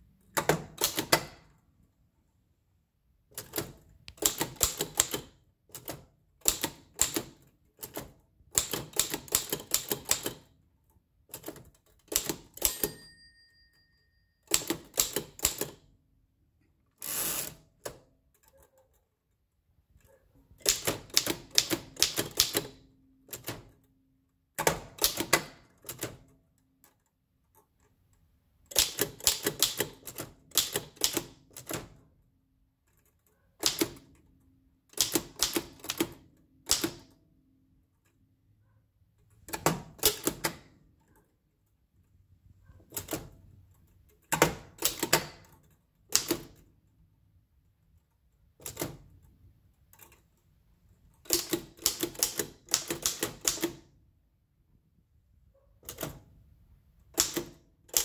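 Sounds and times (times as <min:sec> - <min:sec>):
typewriter keystroke clacks: 0:00.4 - 0:01.4, 0:03.3 - 0:10.6, 0:11.2 - 0:13.0, 0:14.5 - 0:15.9, 0:20.0 - 0:23.9, 0:24.6 - 0:26.3, 0:28.6 - 0:32.0, 0:33.0 - 0:34.3, 0:34.9 - 0:37.2, 0:39.3 - 0:41.0, 0:42.6 - 0:46.7, 0:48.4 - 0:50.2, 0:51.2 - 0:53.9, 0:55.8 - 0:56.4, 0:57.0 - 0:58.0.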